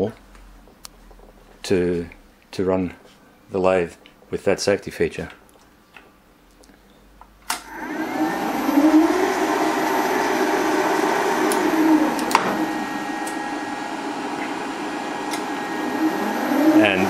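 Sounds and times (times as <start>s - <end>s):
lathe switch click: 7.5s - 7.7s, 11.5s - 12.6s, 15.3s - 15.5s
lathe motor whining: 7.6s - 17.0s.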